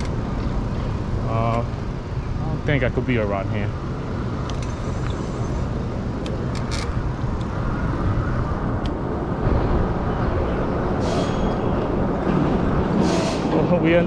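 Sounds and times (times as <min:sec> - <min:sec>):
road traffic: 0:00.0 - 0:14.0
wind buffeting microphone: 0:05.7 - 0:14.0.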